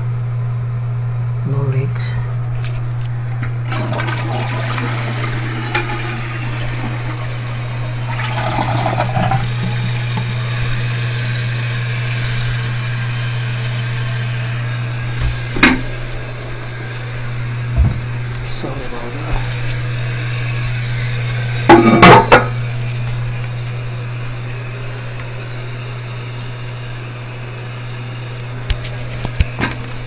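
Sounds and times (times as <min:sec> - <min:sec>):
low hum: 0:00.0 - 0:30.0
toilet flushing and refilling: 0:03.4 - 0:22.9.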